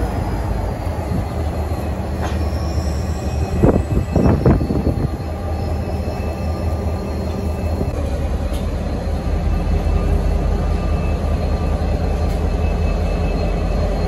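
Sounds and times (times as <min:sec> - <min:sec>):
freight locomotives rumbling: 0:00.0 - 0:14.0
train wheels screeching on rails: 0:00.0 - 0:14.0.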